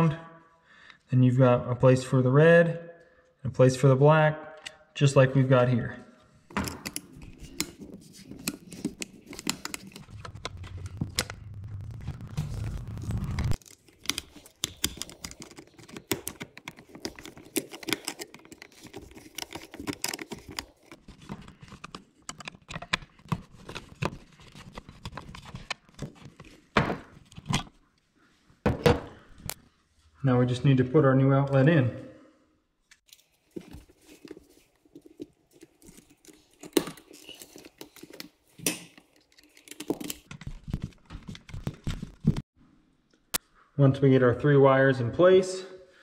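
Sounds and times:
screwdriver clicking and scraping: 6.5s - 11.3s, 13.6s - 26.6s
stiff wires pulled free: 7.5s - 20.9s
low rumble: 9.9s - 13.6s.

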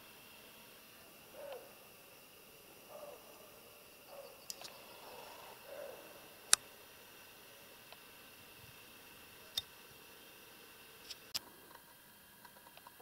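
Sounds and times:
woodland background: 0.0s - 13.0s
faint ticks: 4.1s - 5.2s.

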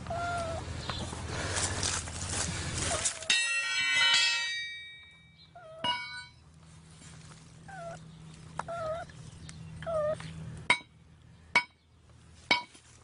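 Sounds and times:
sharp metallic clinks: 3.3s - 6.4s.

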